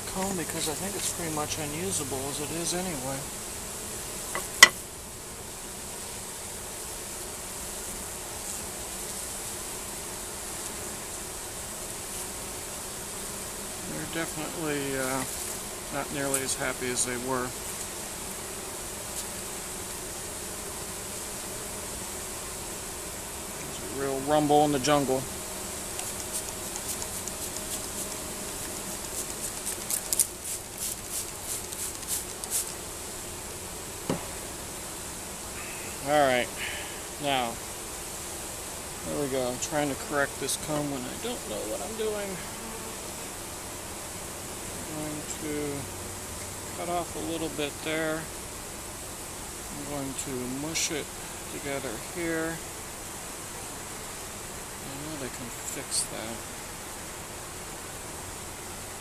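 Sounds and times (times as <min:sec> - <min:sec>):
bees buzzing: 0:00.0 - 0:59.0
honeybee colony humming: 0:00.0 - 0:59.0
spray bottle squirts: 0:29.1 - 0:32.8
sharp knock: 0:34.1 - 0:34.3.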